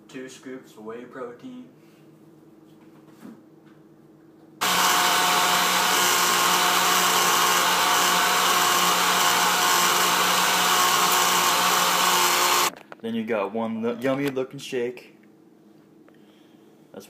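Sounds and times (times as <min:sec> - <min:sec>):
electric blender whirring: 0:04.6 - 0:12.7.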